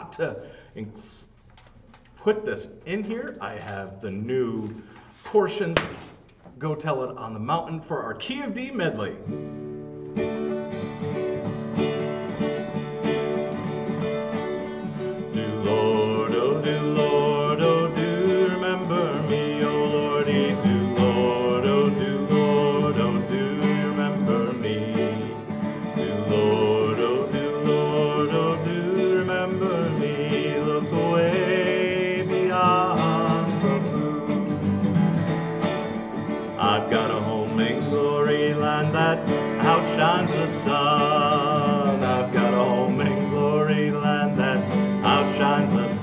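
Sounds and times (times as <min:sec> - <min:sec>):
acoustic guitar strumming: 0:08.5 - 0:46.0
person singing: 0:15.2 - 0:34.6, 0:36.5 - 0:46.0.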